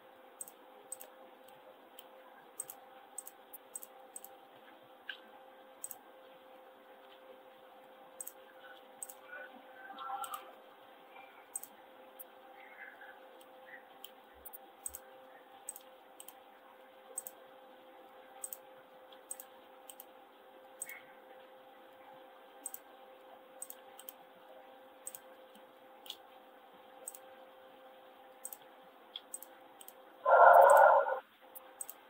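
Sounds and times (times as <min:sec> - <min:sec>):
faint electrical hum: 0:00.0 - 0:32.0
mouse and keyboard clicks: 0:00.4 - 0:04.3, 0:05.8 - 0:06.0, 0:08.2 - 0:09.2, 0:10.0 - 0:10.4, 0:11.5 - 0:11.8, 0:13.4 - 0:15.0, 0:15.6 - 0:16.4, 0:17.2 - 0:17.4, 0:18.4 - 0:20.1, 0:20.8 - 0:21.0, 0:22.6 - 0:22.9, 0:23.6 - 0:24.2, 0:25.0 - 0:26.2, 0:27.0 - 0:27.3, 0:28.4 - 0:32.0.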